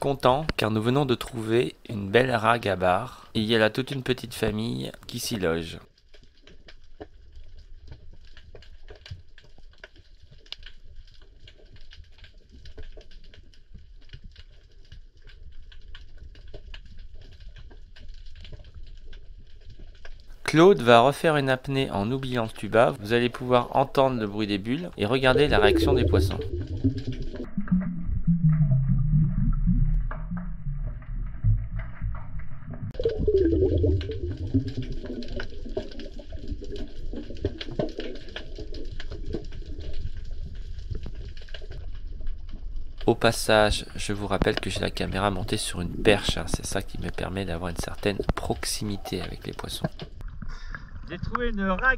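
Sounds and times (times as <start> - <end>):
crackle of small clicks: 0.0 - 1.4, 3.2 - 27.9, 29.8 - 51.6
low rumble of moving water: 5.8 - 20.4, 22.0 - 51.9
underwater air bubbles: 24.6 - 51.3.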